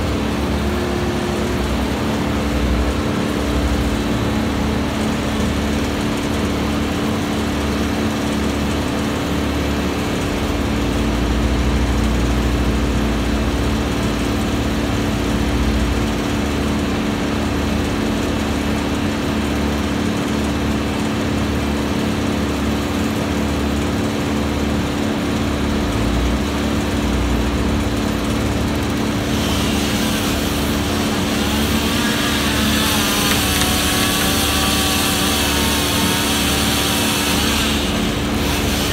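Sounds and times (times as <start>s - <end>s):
wood chipper engine running: 0.0s - 38.9s
high harsh grinding sound: 29.0s - 38.9s.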